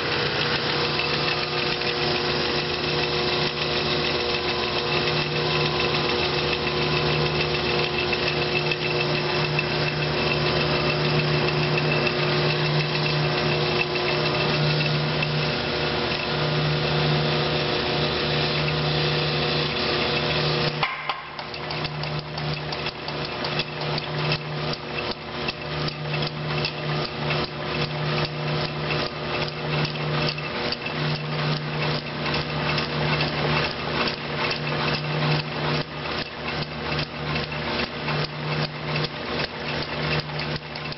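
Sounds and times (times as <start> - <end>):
flywheel humming: 0.0 - 40.9
power hammer knocking: 20.7 - 23.6.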